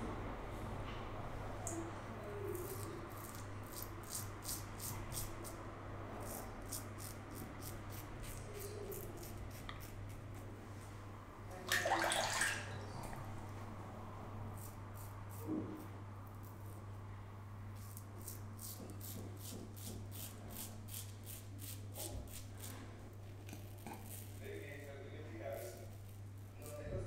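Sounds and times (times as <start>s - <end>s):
razor scraping stubble: 2.4s - 5.6s, 6.2s - 10.4s, 14.6s - 16.8s, 17.8s - 27.0s
running water: 11.6s - 13.1s.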